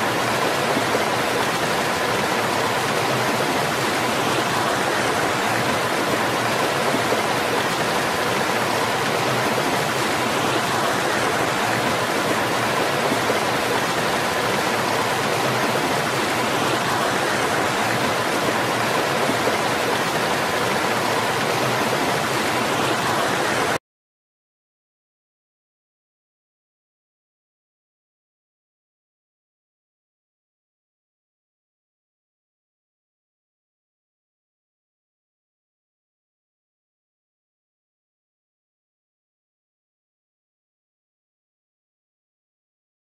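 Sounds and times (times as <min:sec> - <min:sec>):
waterfall splashing into pool: 0:00.0 - 0:23.8.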